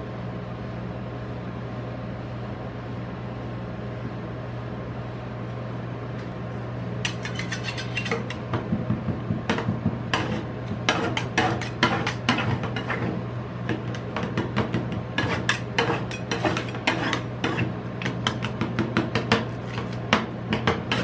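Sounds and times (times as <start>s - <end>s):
refrigeration unit humming: 0.0s - 21.0s
metal spatulas tapping and scraping: 7.0s - 21.0s.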